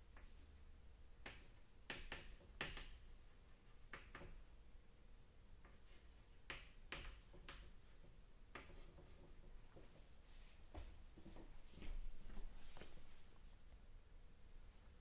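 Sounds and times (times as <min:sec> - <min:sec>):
chalk tapping and scraping: 0:05.6 - 0:13.6.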